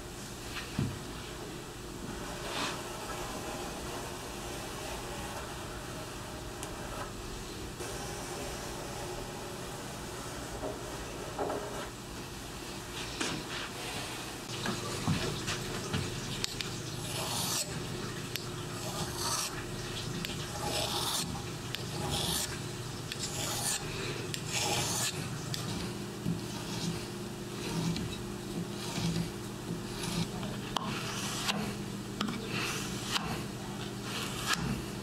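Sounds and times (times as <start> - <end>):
low workshop hum: 0.0 - 35.0
blade scraping on sharpening stone: 17.0 - 17.7, 18.8 - 19.5, 20.6 - 21.3, 21.9 - 23.8, 24.4 - 25.7, 28.8 - 29.3.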